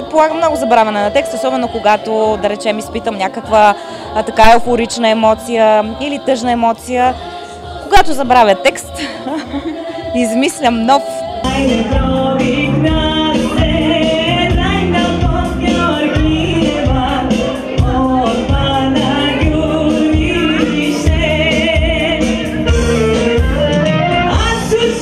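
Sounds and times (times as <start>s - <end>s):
woman singing into a microphone: 0.0s - 22.6s, 23.4s - 25.0s
instrumental backing with beat: 9.2s - 25.0s.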